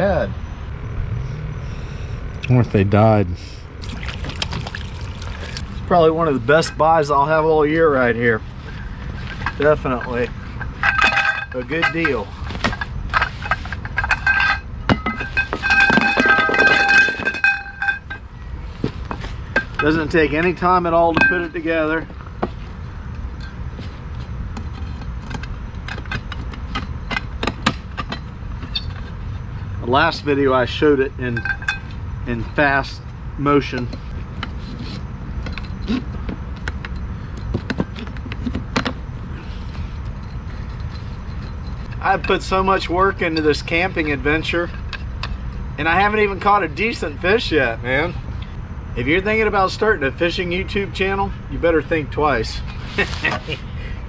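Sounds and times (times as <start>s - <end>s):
steady low rumble: 0.3s - 51.5s
metal tubes clinking: 3.8s - 18.3s, 19.1s - 22.0s, 30.6s - 32.0s, 38.8s - 45.6s.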